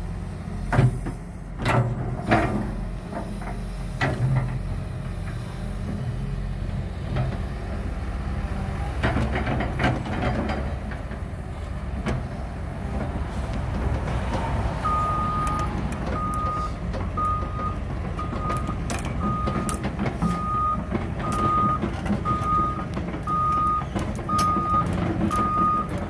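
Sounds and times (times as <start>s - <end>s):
excavator diesel engine rumbling: 0.0s - 26.0s
travel alarm beeps: 14.8s - 25.9s.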